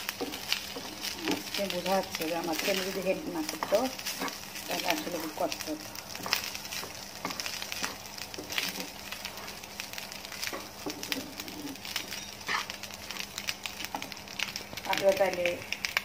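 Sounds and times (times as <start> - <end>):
rice sizzling in frying pan: 0.0 - 16.0
wooden spatula scraping pan: 0.2 - 5.4, 6.1 - 9.7.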